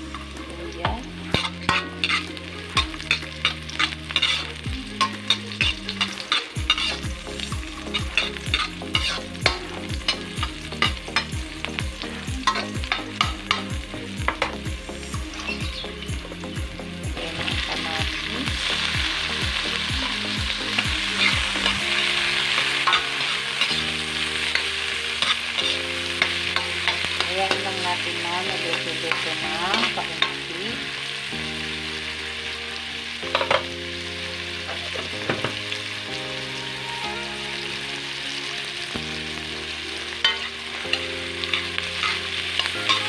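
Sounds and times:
vegetables sizzling in oil: 0.0 - 43.0
spatula scraping pan: 1.2 - 7.2, 7.8 - 11.4, 21.1 - 30.5, 40.2 - 43.0.

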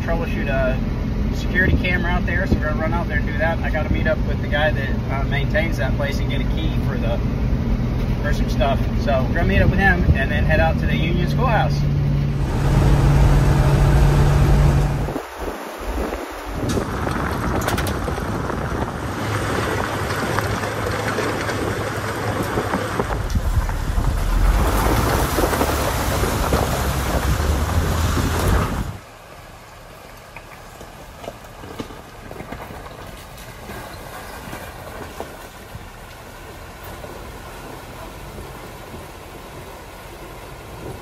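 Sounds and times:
truck engine running: 0.0 - 41.0
river water rushing: 11.8 - 41.0
water splashing under tyres: 12.2 - 41.0.

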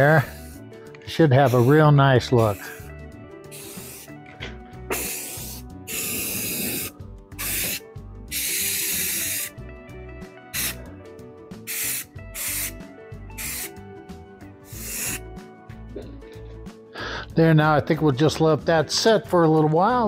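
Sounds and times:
spray paint can hissing: 0.0 - 0.6, 1.3 - 2.9, 3.5 - 4.2, 4.9 - 9.6, 10.5 - 10.9, 11.6 - 13.8, 14.6 - 15.2.

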